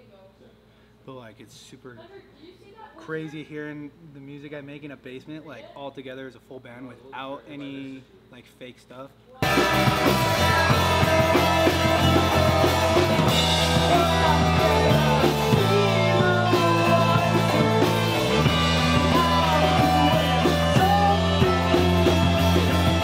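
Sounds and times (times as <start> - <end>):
rock band playing: 9.4 - 23.0.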